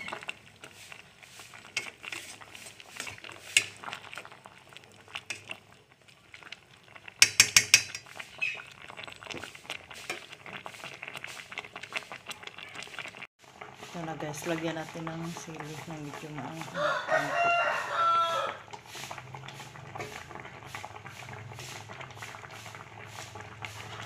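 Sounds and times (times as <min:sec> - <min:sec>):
metal ladle scraping a pot: 0:00.0 - 0:04.3, 0:07.2 - 0:12.3, 0:17.4 - 0:24.0.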